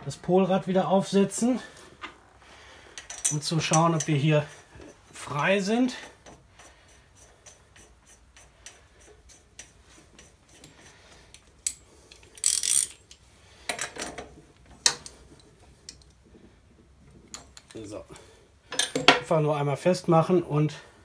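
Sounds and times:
metal clicking and rubbing: 0:03.0 - 0:16.2
socket ratchet clicking: 0:11.3 - 0:13.2.

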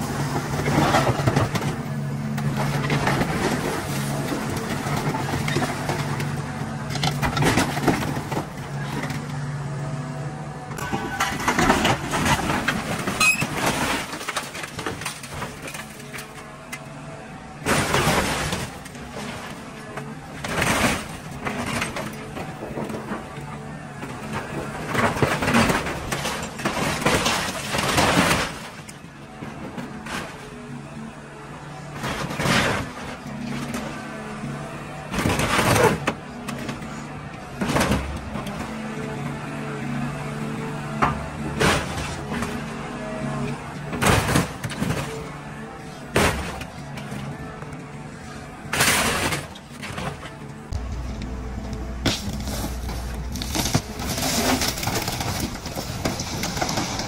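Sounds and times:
excavator engine humming: 0:00.0 - 0:57.0
metal crunching and crashing: 0:00.0 - 0:57.0
sheet metal crunching: 0:48.7 - 0:57.0.

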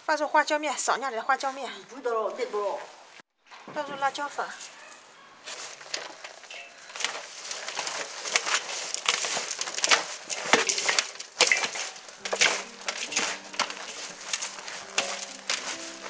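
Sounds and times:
gloved hands rustling and crunching greens: 0:04.3 - 0:16.0.

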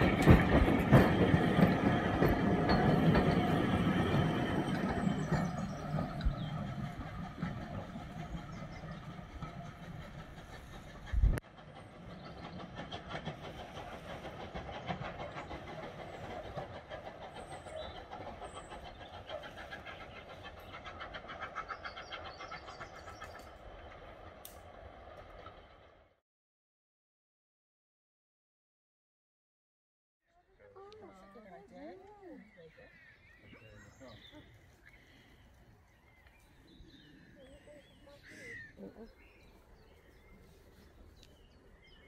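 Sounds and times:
steam locomotive exhaust beats: 0:00.0 - 0:25.7
train carriages clattering: 0:00.0 - 0:25.8.

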